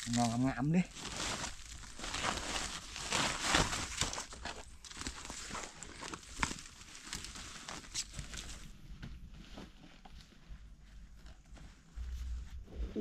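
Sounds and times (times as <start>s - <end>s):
footsteps through dry leaf litter: 0.0s - 8.7s
cloth bag rustling: 0.9s - 12.6s.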